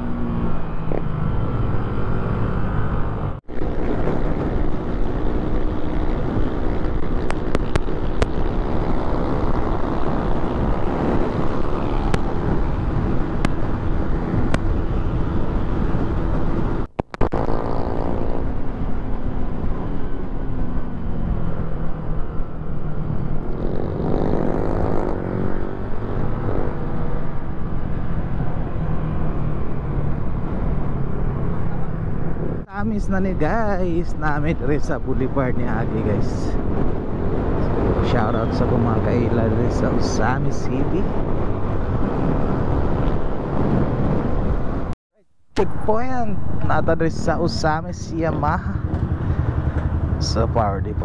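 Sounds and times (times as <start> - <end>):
wind noise on microphone: 3.0 - 45.0
motorcycle engine running: 48.2 - 51.0.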